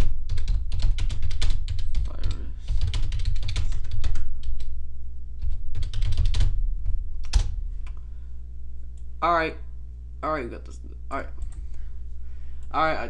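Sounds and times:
typing on keyboard: 0.0 - 4.7, 5.4 - 6.5
steady low hum: 0.0 - 13.0.

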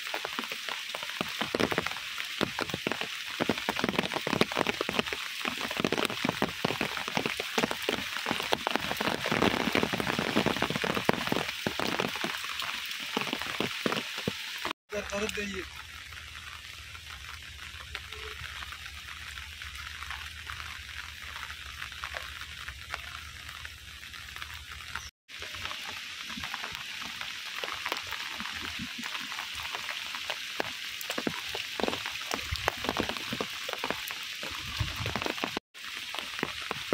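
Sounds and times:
rain falling on water: 0.0 - 36.9
raindrops pattering: 0.0 - 36.9.

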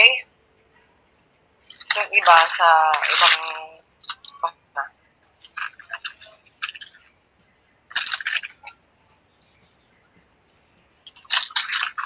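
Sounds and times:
high chirp: 8.6 - 10.8
dry noodles crackling and snapping: 11.1 - 12.0.

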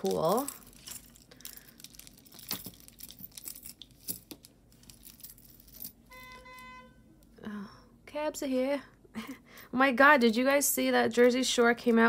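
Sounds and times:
faint crinkling and rustling: 0.0 - 6.0.

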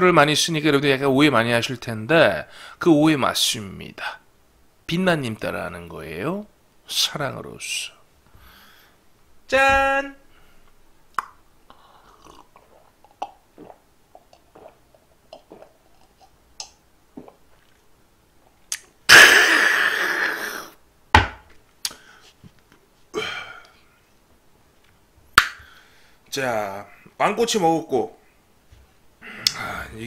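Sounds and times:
man swallowing a drink: 11.2 - 17.8
small mouth sounds: 11.2 - 17.8, 18.7 - 20.7.

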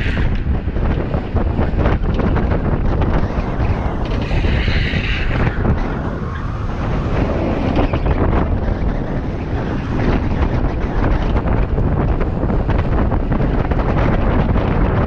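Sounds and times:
skateboard wheels rolling on asphalt: 0.0 - 15.0
wind buffeting microphone: 0.0 - 15.0.

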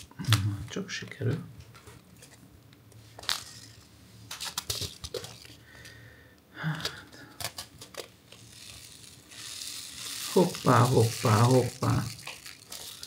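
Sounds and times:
foil pouch crinkling and tearing: 6.9 - 13.0.

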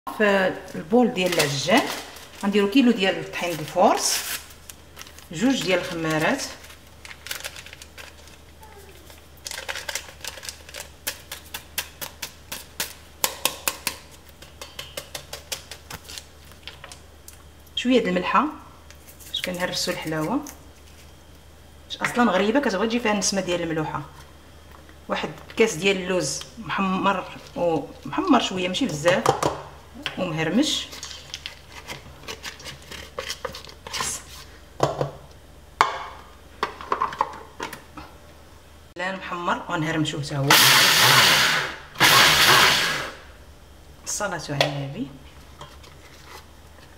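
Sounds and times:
plastic sachet crackling: 1.2 - 13.0.

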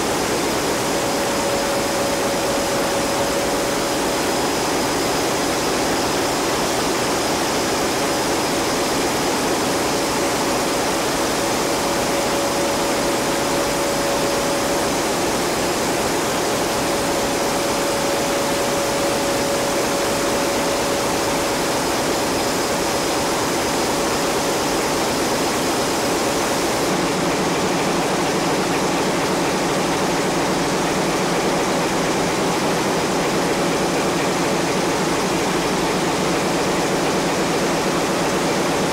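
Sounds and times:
marine diesel engines running: 0.0 - 8.6
faint steady whine: 0.0 - 38.9.

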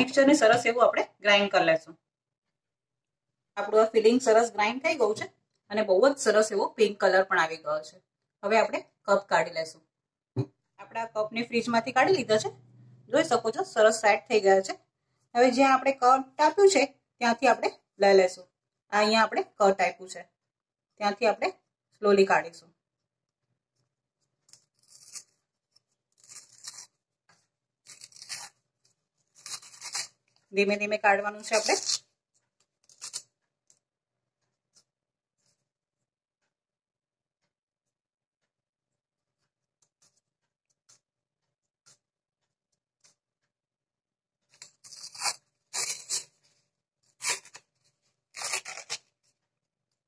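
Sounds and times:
paper liner tearing and crinkling: 24.6 - 25.4, 26.1 - 27.0, 27.8 - 30.2, 44.6 - 46.4, 47.1 - 49.2.

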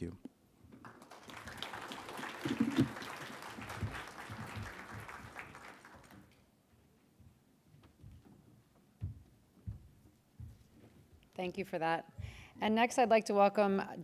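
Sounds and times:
audience applauding: 0.8 - 6.4.

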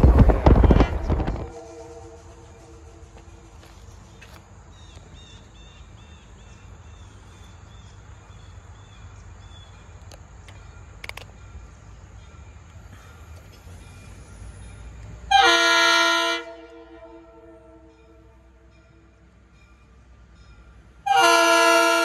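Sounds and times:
steady low rumble: 0.0 - 4.8
sharp clicks: 10.0 - 11.4.

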